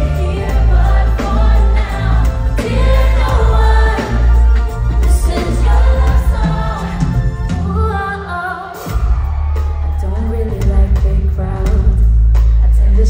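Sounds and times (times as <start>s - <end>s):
woman singing a pop ballad: 5.0s - 13.0s
deep bass: 8.9s - 13.0s.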